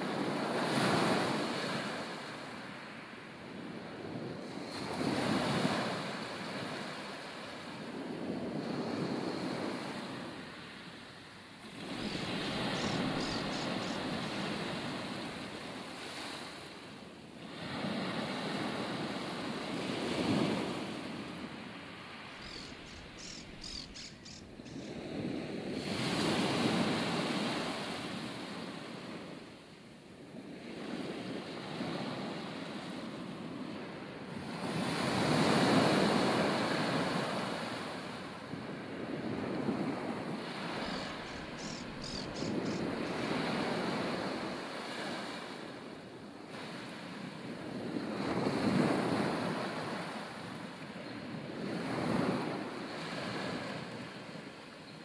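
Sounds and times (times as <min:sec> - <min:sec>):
wind: 0:00.0 - 0:55.0
sea waves breaking: 0:11.6 - 0:28.7, 0:34.5 - 0:47.3
high chirps: 0:12.2 - 0:14.1, 0:22.4 - 0:25.0, 0:40.9 - 0:43.2.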